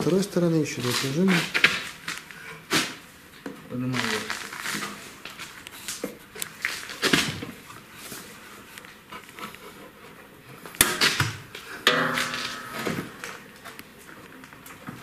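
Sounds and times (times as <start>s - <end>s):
metallic clicks and knocks: 11.9s - 13.4s
metal clatter: 11.9s - 13.5s.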